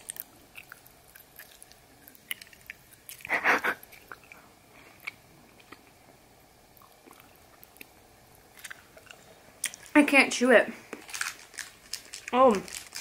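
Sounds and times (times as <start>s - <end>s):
chewing sticky caramel: 0.0s - 6.0s, 6.7s - 10.0s.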